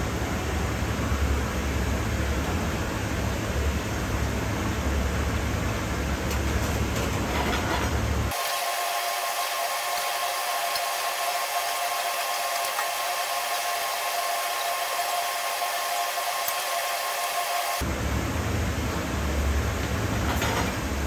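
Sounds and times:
kitchen ventilation: 0.0 - 21.0
gas burner rushing: 6.3 - 18.8.

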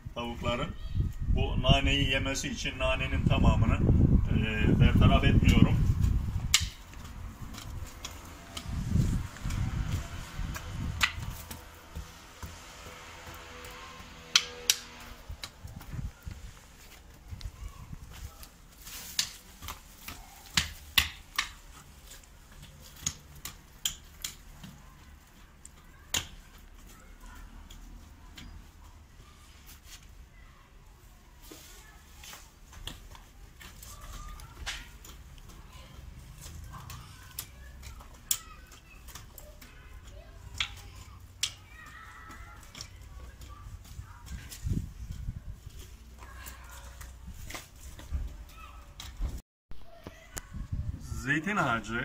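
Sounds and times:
hand hoe striking stony soil: 6.0 - 15.9, 18.4 - 24.8.

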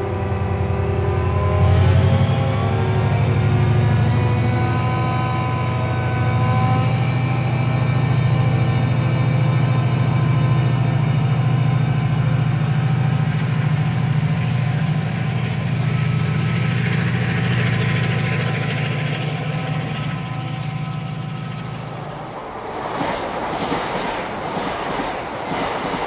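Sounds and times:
locomotive engine accelerating: 0.0 - 26.0.

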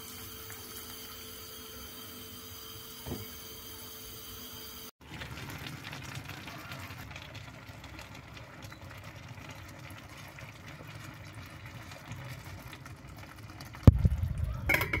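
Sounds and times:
oil trickling and splashing: 5.0 - 14.2.

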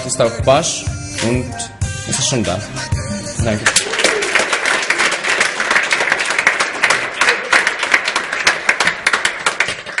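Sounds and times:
audience applauding: 3.6 - 10.0.

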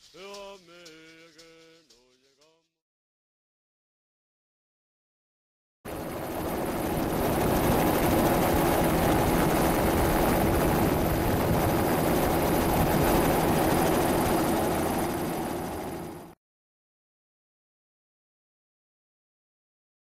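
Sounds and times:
helicopter engine and rotor: 5.9 - 16.4.

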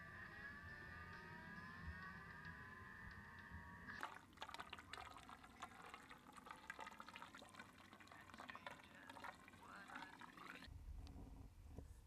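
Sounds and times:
water poured through a funnel: 3.9 - 10.7.

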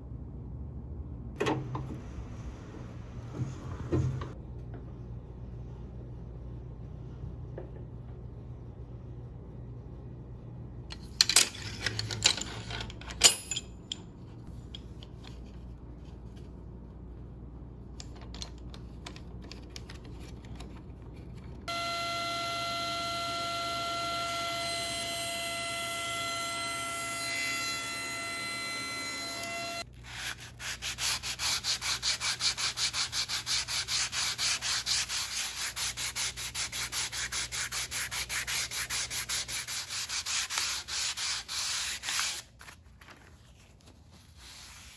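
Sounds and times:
table saw whining: 21.7 - 29.8
hand sanding wood: 30.0 - 42.5.

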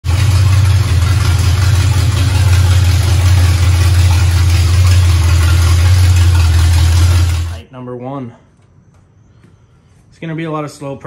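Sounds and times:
truck engine idling: 0.0 - 7.6.

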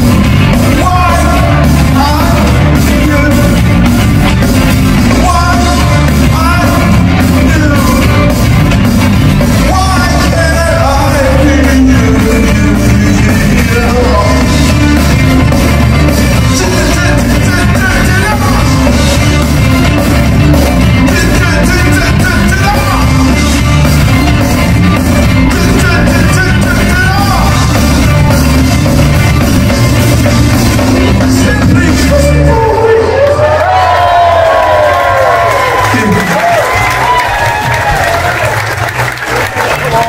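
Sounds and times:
bass guitar: 0.0 - 40.0
drums: 0.0 - 40.0
electric guitars: 0.0 - 40.0
person singing: 0.6 - 4.0, 5.0 - 8.5, 9.5 - 15.5, 16.1 - 19.6, 20.6 - 23.9, 25.3 - 28.0, 30.9 - 33.8.

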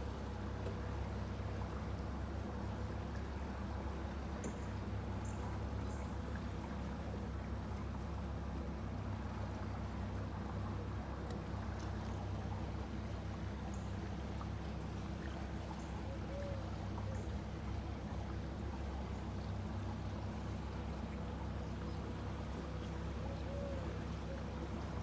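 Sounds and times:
boat engine humming: 0.0 - 25.0.

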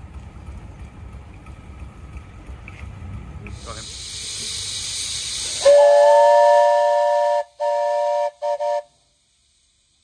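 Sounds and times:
steam hissing: 3.5 - 10.0
steam whistle blasts: 5.4 - 9.1.

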